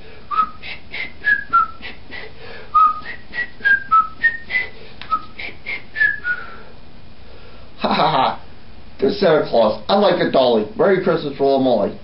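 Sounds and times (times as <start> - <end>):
person whistling a tune: 0.3 - 6.7.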